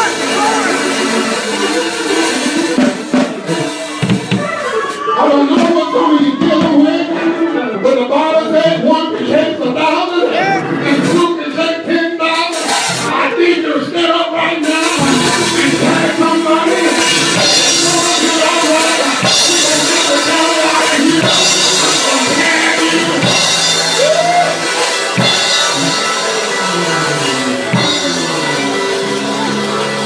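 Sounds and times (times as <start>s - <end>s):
live band music: 0.0s - 30.0s
cymbals crashing: 14.6s - 30.0s.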